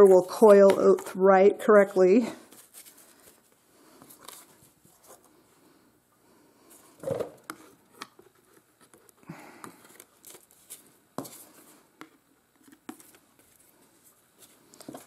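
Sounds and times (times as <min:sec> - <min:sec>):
paper rustle: 0:02.4 - 0:05.3, 0:09.8 - 0:11.6.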